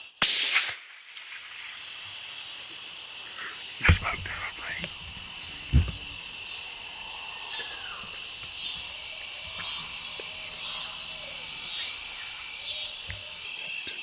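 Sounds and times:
insects chirping: 0.0s - 14.0s
pulsing insect call: 0.8s - 14.0s
heavy thump: 3.9s - 4.3s, 5.1s - 6.2s.

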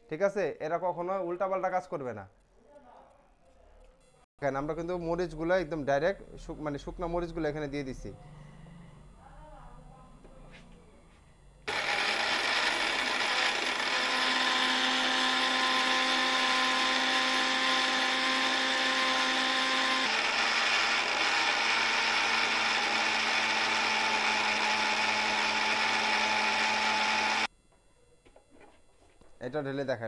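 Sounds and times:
mixer grinder grinding chillies: 11.7s - 27.5s.

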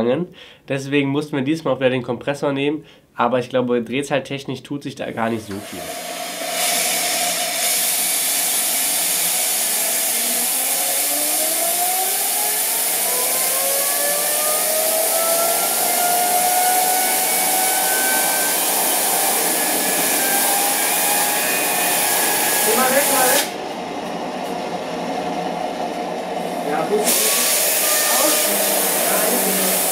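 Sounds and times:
turbine whine rising in pitch: 5.5s - 29.9s
loud rush of air: 5.6s - 11.0s, 14.5s - 29.9s.

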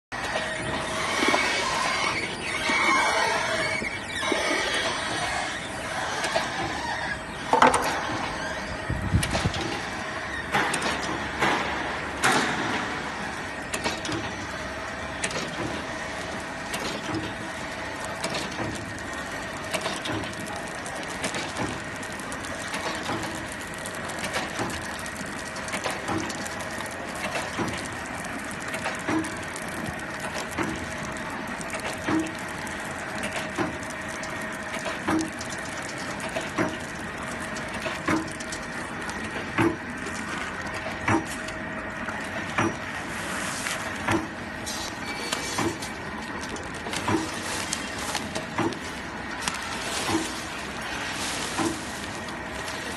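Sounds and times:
machine motor hum: 0.2s - 52.9s.

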